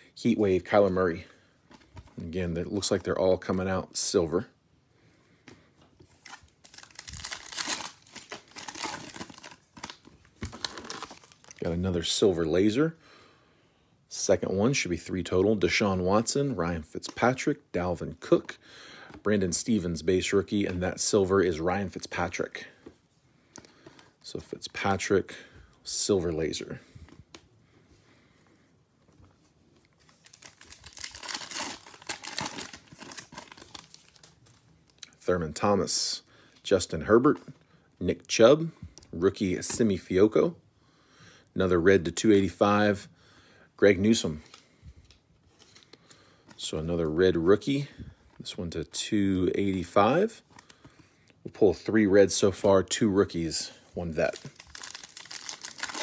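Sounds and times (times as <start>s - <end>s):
foil wrapper tearing and crinkling: 6.2s - 11.6s, 30.2s - 34.4s, 54.2s - 56.0s.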